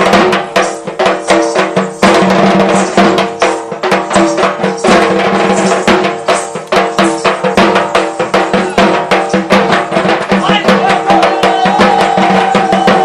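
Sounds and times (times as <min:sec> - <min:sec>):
barrel drum beaten quickly: 0:00.0 - 0:13.0.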